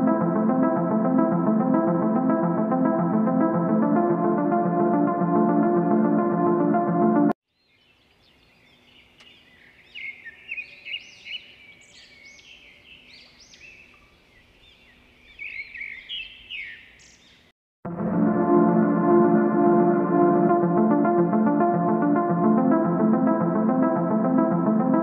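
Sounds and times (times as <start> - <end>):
caged birds chirping: 7.7 - 17.5.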